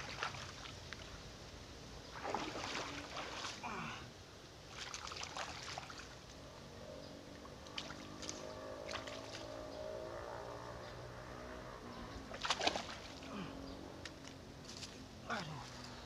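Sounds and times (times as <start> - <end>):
stream water splashing: 0.0 - 1.3, 2.0 - 6.5, 7.3 - 10.1, 12.2 - 16.0.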